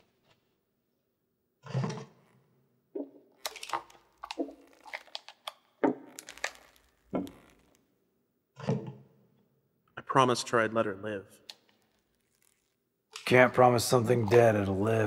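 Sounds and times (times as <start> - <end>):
sharp cracks and knocks: 3.0 - 7.7.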